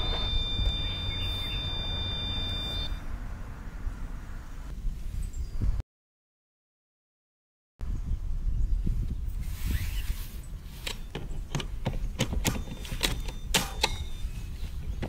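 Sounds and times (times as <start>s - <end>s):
low steady rumble: 0.0s - 5.0s
plastic clicks and knocks: 10.9s - 14.1s.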